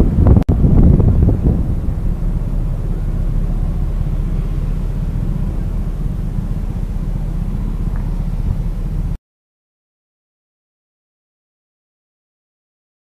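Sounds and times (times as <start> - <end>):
scooter road noise: 0.0 - 9.2
wind buffeting microphone: 0.0 - 9.2.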